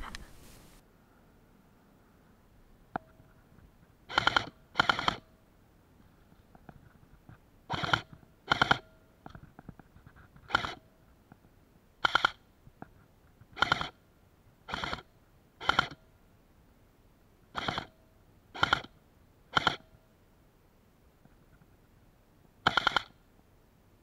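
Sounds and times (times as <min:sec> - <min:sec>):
airsoft rifle firing bursts: 0:04.1 - 0:05.3, 0:07.7 - 0:08.8, 0:12.0 - 0:12.4, 0:13.6 - 0:14.0, 0:19.5 - 0:19.8, 0:22.6 - 0:23.2.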